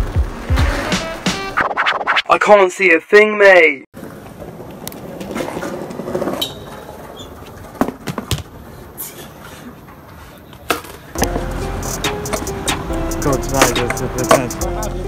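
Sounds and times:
skateboard wheels rolling on paving: 0:04.0 - 0:09.0.

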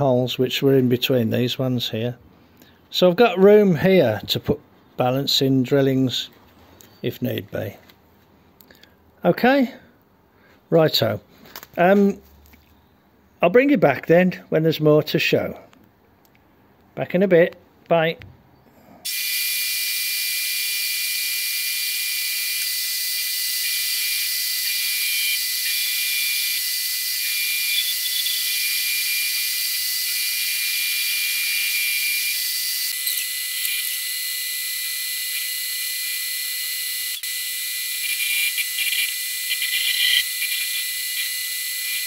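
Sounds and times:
metal lathe whining: 0:19.8 - 0:42.0.

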